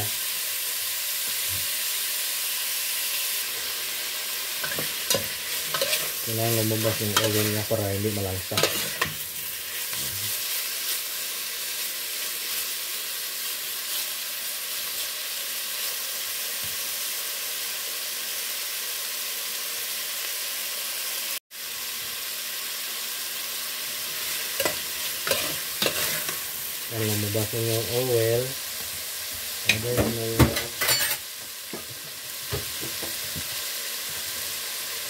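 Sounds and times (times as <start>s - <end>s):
pork sizzling in hot oil: 0.0s - 35.0s
spatula scraping a pot: 4.6s - 6.2s, 24.6s - 26.4s.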